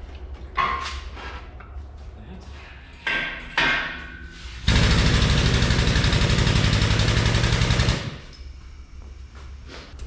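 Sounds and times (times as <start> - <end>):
power impact tool hammering: 4.7 - 8.2.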